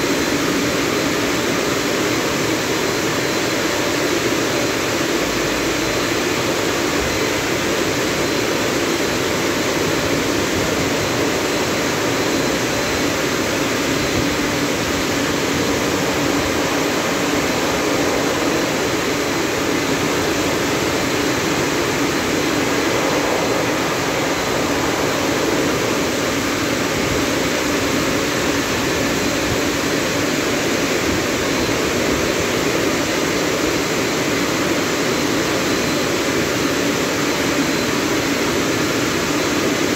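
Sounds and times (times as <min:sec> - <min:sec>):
dryer blowers rushing air: 0:00.0 - 0:39.9
faint high whine: 0:00.0 - 0:39.9.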